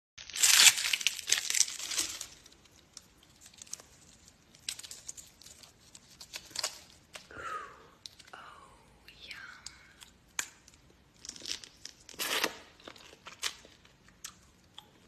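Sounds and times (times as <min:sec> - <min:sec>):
leaves crackling and tearing: 0:00.2 - 0:07.3
faint clicks and snaps: 0:09.4 - 0:10.9.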